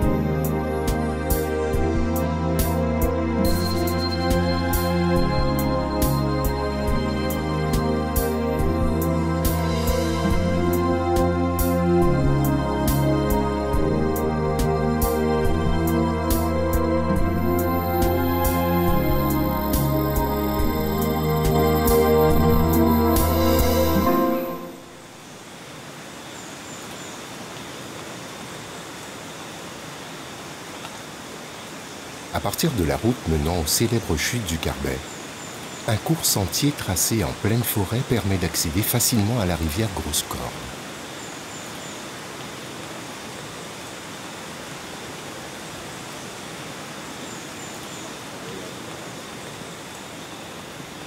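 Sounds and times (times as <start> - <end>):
rainforest ambience hiss: 0.0 - 51.0
river water rushing: 17.4 - 51.0.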